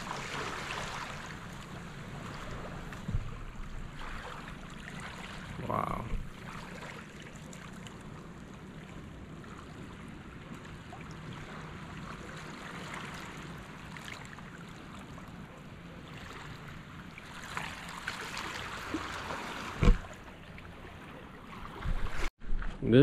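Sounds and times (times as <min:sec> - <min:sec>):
sea water lapping: 0:00.0 - 0:22.3
small splashes: 0:00.0 - 0:22.3
dull thump: 0:02.9 - 0:03.5, 0:19.8 - 0:20.1.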